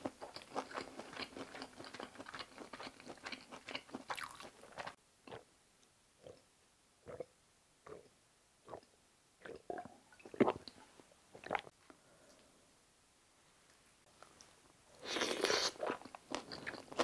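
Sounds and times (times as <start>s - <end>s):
person gulping a drink: 8.7s - 11.7s.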